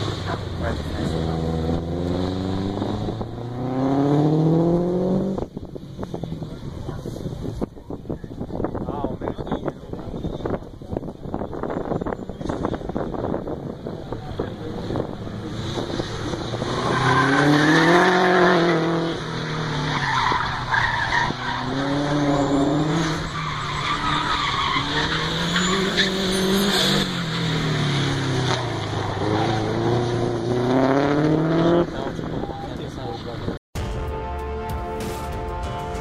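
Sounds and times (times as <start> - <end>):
car engine revving hard: 0.0 - 5.6, 13.6 - 20.0, 21.2 - 32.6
tyres squealing: 19.7 - 27.7.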